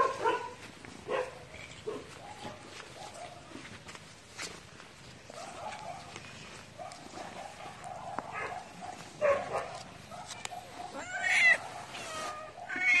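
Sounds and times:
cat meowing: 10.9 - 13.0.

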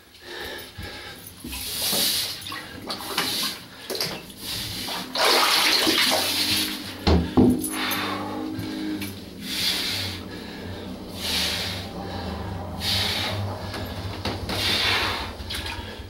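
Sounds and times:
water splashing and rushing: 4.8 - 7.1.

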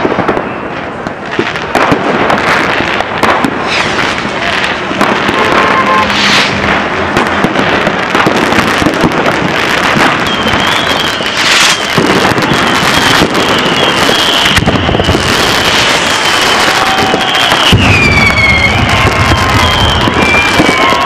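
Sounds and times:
fireworks crackling and popping: 0.0 - 21.0
sharp firework bang: 1.3 - 10.6, 11.4 - 21.0
high wavering whistle: 10.2 - 15.4, 17.1 - 21.0.

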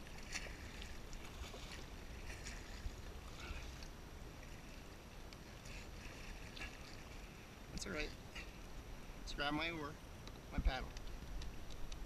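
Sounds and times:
paddle splashing in water: 0.0 - 7.5.

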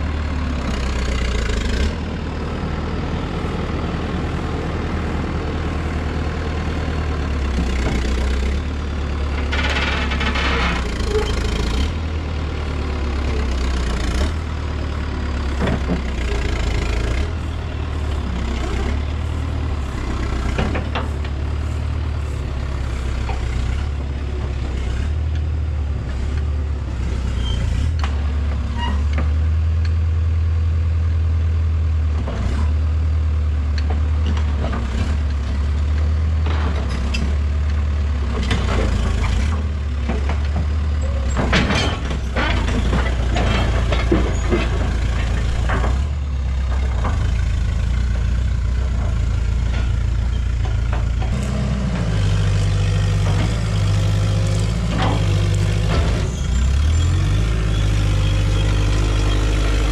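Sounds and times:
excavator engine running: 0.0 - 59.9
metal knocks and clanks: 17.3 - 23.7, 40.0 - 46.1.

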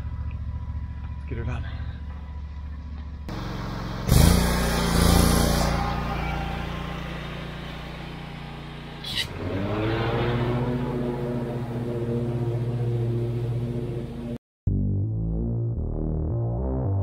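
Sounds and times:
mower engine revving: 3.3 - 14.4.

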